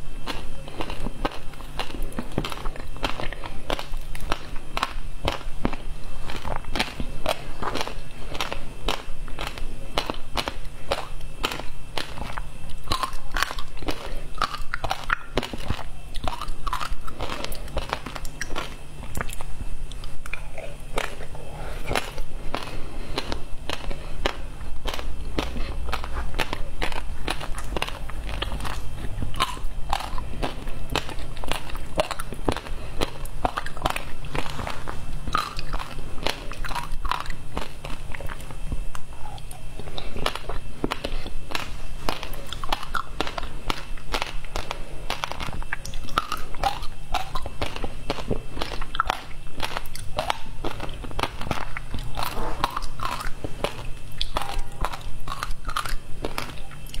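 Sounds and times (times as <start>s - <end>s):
crunchy ice chewing: 0.0s - 57.0s.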